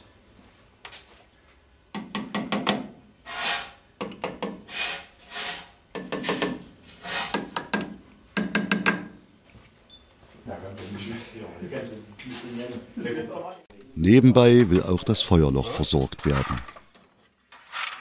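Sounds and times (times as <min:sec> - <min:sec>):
metal tool scraping: 0:03.2 - 0:03.8, 0:04.6 - 0:07.4.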